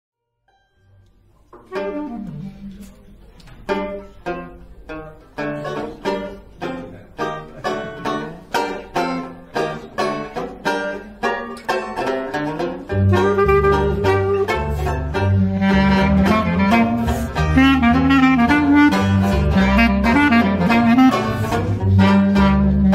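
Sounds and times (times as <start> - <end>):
banjo strumming chords: 0.4 - 22.9
clarinet held note: 1.6 - 3.0, 13.0 - 22.9
double bass: 1.6 - 22.9.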